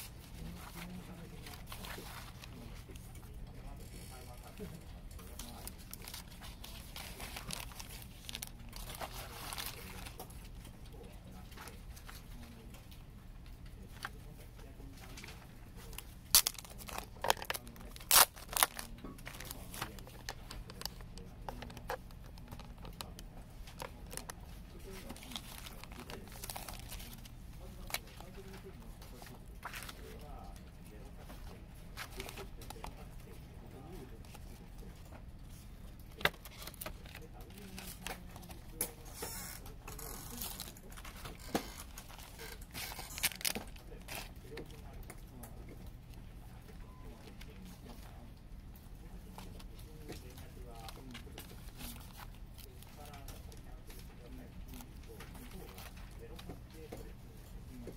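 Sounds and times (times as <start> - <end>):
paper rustling: 0.0 - 3.1, 3.7 - 10.6, 14.9 - 34.7
plastic wrapping crinkling: 0.0 - 10.7, 15.0 - 45.4, 49.3 - 57.1.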